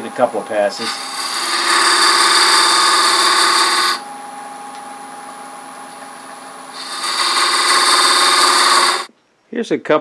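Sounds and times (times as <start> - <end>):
lathe running hum: 0.0 - 9.1
scraper cutting spinning wood: 0.7 - 4.0, 6.8 - 9.1.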